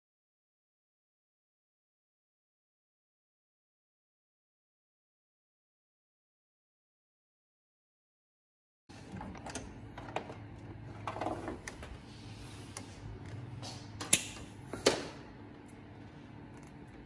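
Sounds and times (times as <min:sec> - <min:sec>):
faint steady hum: 0:08.9 - 0:17.0.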